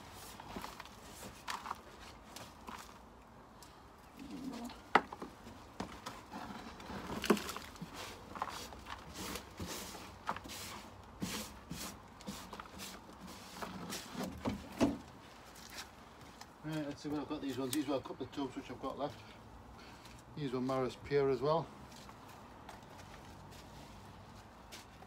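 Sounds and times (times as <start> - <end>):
compost scraping and rustling: 0.0 - 3.1, 4.2 - 25.0.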